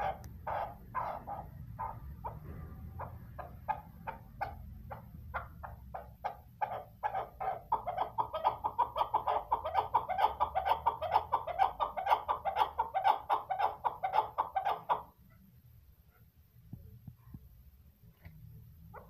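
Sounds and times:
partridge clucking calls: 0:00.0 - 0:15.2.

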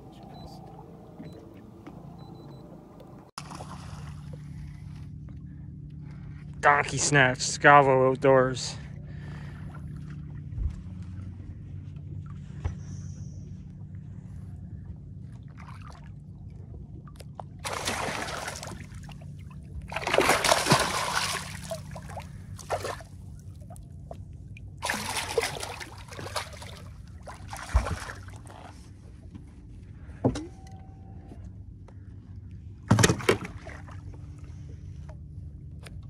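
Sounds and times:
steady low hum: 0:00.0 - 0:36.0
water splashing: 0:17.0 - 0:23.8, 0:24.8 - 0:28.7.

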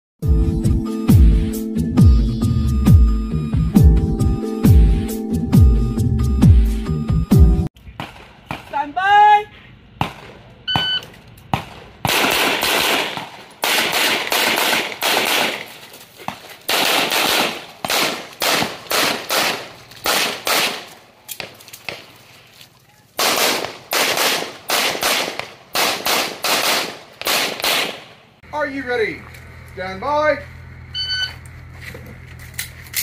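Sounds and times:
rapid pistol fire: 0:11.5 - 0:15.8, 0:16.7 - 0:20.9, 0:23.2 - 0:28.2.

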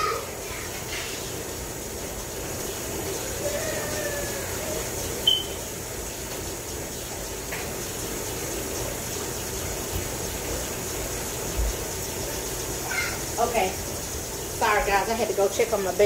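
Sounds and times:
faucet water running into sink: 0:00.0 - 0:16.0
short high chirp: 0:05.2 - 0:05.6.

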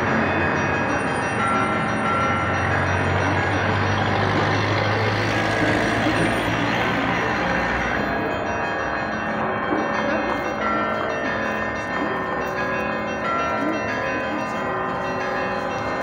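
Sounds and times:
church bells ringing: 0:00.0 - 0:16.0
city street traffic: 0:00.0 - 0:16.0
heavy vehicle passing: 0:01.2 - 0:08.3.

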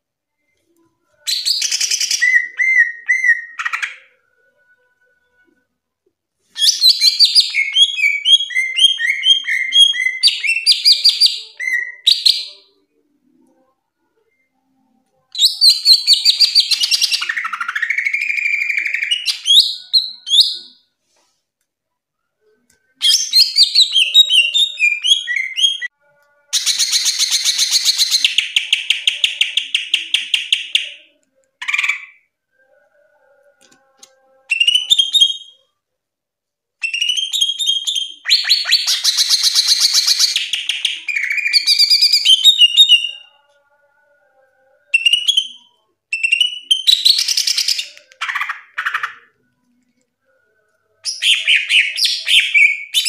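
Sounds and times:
bird singing with whistles and trills: 0:01.2 - 0:04.2, 0:06.6 - 0:12.7, 0:15.3 - 0:20.8, 0:23.0 - 0:25.9, 0:26.5 - 0:32.2, 0:34.4 - 0:35.6, 0:36.8 - 0:43.4, 0:44.8 - 0:49.4, 0:51.0 - 0:53.0.

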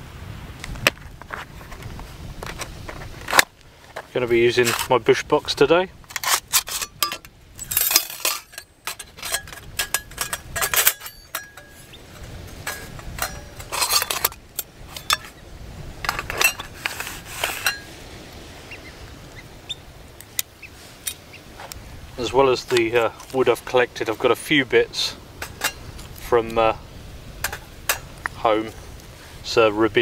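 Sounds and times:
metal panels clinking: 0:06.1 - 0:15.4, 0:16.0 - 0:17.9, 0:25.3 - 0:26.7, 0:27.4 - 0:28.8.

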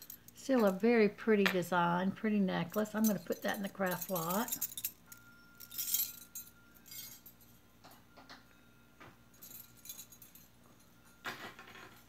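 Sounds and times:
metal chains jingling: 0:00.0 - 0:00.8, 0:02.6 - 0:08.0, 0:09.3 - 0:12.0.

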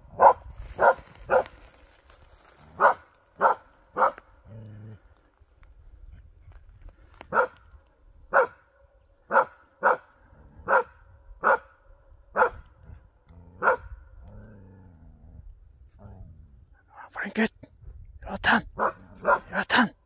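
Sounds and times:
dog barking sharply: 0:00.2 - 0:01.5, 0:02.8 - 0:04.2, 0:07.3 - 0:07.6, 0:08.3 - 0:08.6, 0:09.3 - 0:10.0, 0:10.7 - 0:11.7, 0:12.4 - 0:12.6, 0:18.8 - 0:19.8.

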